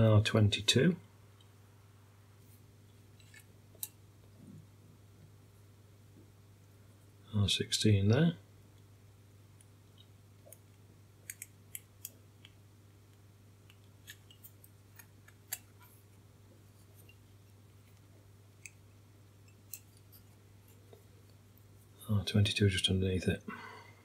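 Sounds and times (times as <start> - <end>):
low steady hum: 0.0 - 24.0
small clicks of handled components: 11.2 - 15.9.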